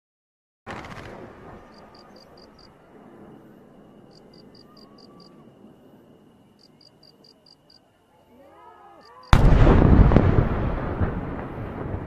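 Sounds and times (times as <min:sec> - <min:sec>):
fireworks rumble and crackle: 0:00.7 - 0:07.4, 0:09.2 - 0:12.0.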